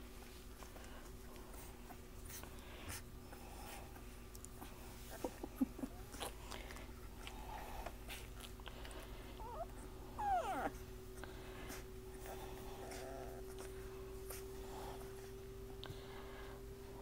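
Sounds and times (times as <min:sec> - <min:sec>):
puppies squeaking and whimpering: 0:09.3 - 0:10.9.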